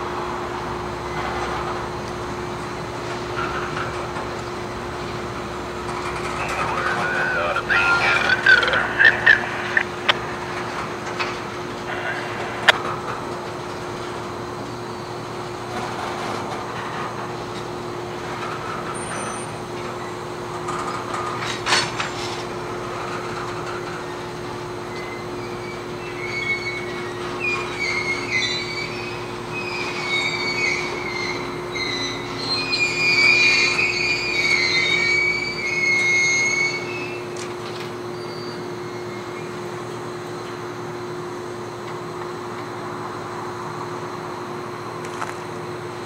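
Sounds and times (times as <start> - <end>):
steady low hum: 0.0 - 18.7
freight cars rolling: 0.0 - 46.0
steel wheels squealing on rail: 14.2 - 40.3.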